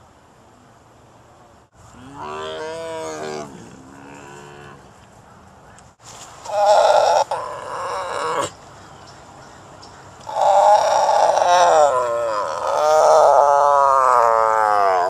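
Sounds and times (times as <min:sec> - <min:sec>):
tiger yawning call: 0:10.2 - 0:15.0.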